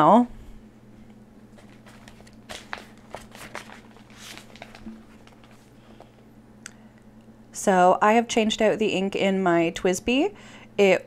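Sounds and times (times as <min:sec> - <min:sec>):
low steady hum: 0:00.0 - 0:11.0
paper rustling: 0:01.5 - 0:06.2
pages tapping: 0:01.6 - 0:06.1.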